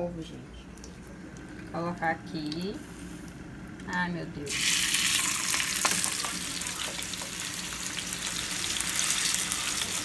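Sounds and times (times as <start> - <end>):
beef sizzling in hot oil: 4.5 - 10.0.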